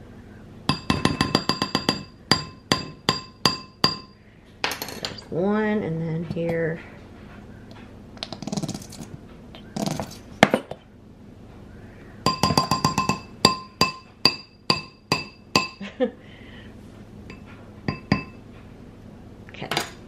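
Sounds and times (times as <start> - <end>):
spoon tapping ceramic bowl: 0.7 - 4.1, 12.2 - 15.8, 17.3 - 18.4.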